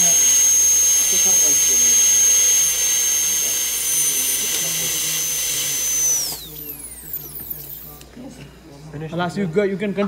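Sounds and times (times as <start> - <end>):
dental drill high-pitched whine: 0.0 - 8.0.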